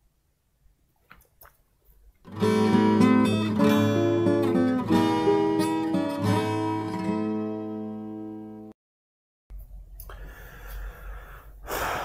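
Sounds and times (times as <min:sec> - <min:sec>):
strummed acoustic guitar chords: 0:02.3 - 0:08.7.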